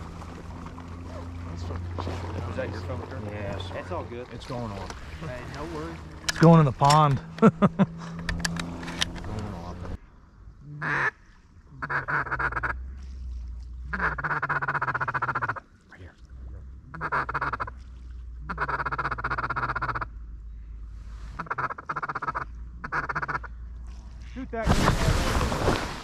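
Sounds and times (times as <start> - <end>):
low steady rumble: 0.0 - 26.0
duck quacking: 10.8 - 11.2, 11.8 - 12.8, 13.9 - 15.6, 16.9 - 17.7, 18.4 - 20.1, 21.4 - 23.5.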